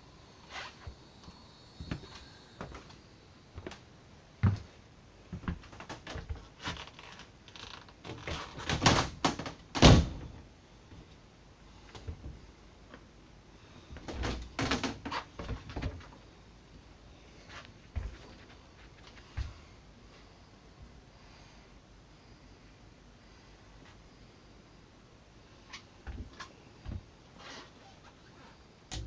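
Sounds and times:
cabinet doors opening and shutting: 8.2s - 10.4s, 14.0s - 16.0s.

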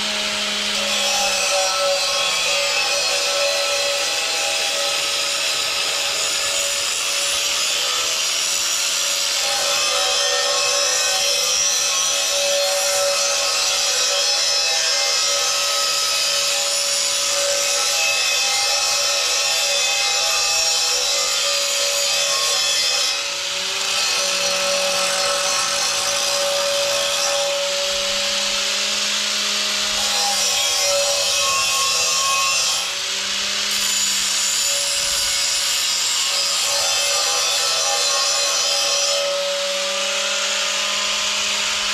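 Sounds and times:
angle grinder grinding steel: 0.0s - 41.9s.

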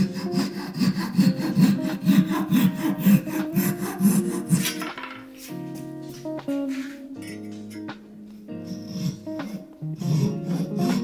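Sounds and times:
handsaw sawing wood: 0.0s - 4.8s, 8.7s - 11.0s.

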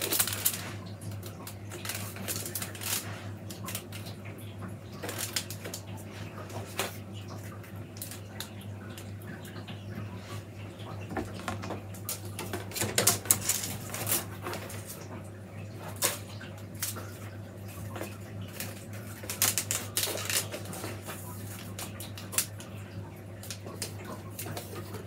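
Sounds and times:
willow rods rustling and clicking: 0.0s - 4.2s, 4.9s - 7.1s, 11.1s - 15.2s, 17.9s - 22.7s.

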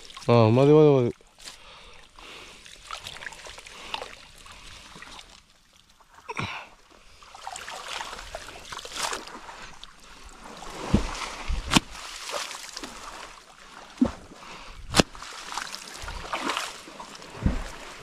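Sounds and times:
water splashing and sloshing: 0.0s - 18.0s
sharp hits on water: 10.8s - 12.9s, 14.9s - 15.3s.

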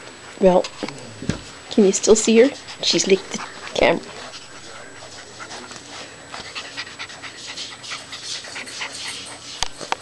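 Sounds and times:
puppy panting: 2.0s - 10.0s.

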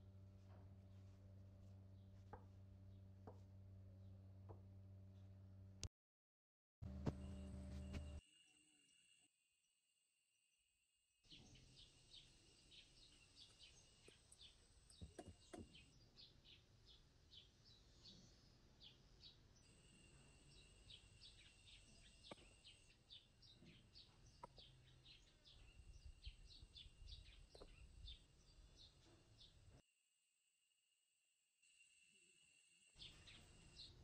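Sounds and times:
small birds chirping: 11.3s - 29.8s, 33.0s - 34.0s.

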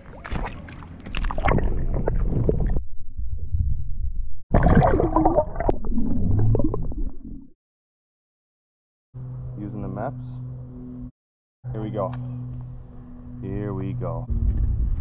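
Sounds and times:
muffled water sloshing and gurgling: 0.0s - 7.6s.

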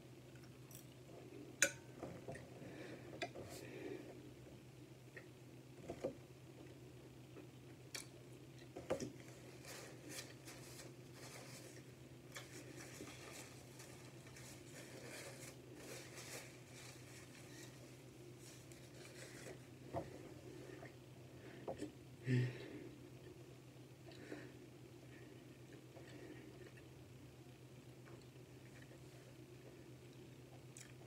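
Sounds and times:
steady low hum: 0.0s - 31.0s
paper napkin rustling: 9.2s - 19.6s
person chewing: 30.5s - 31.0s.

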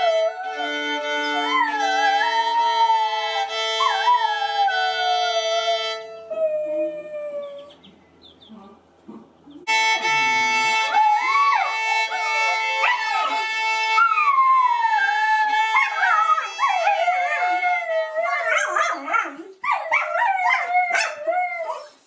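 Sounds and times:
dog yipping: 0.0s - 5.9s, 10.8s - 17.6s, 18.2s - 22.0s
held instrument note: 0.0s - 6.4s, 9.6s - 17.9s
dog howling: 0.0s - 7.8s, 10.2s - 21.9s.

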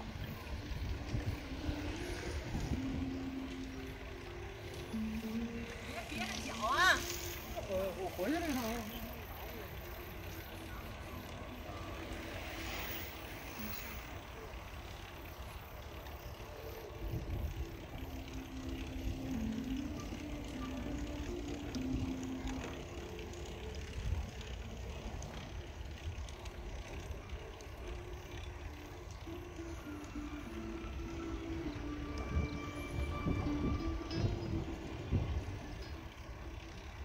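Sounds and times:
wind rumble on microphone: 0.0s - 8.1s, 15.9s - 37.0s
bicycle tyre noise: 0.0s - 37.0s.

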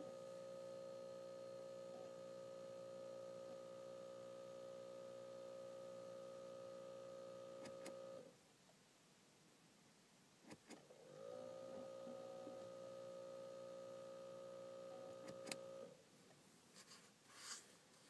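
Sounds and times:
steady electronic buzz: 0.0s - 8.3s, 11.1s - 16.0s
sharp click: 7.6s - 8.0s, 15.2s - 15.6s.

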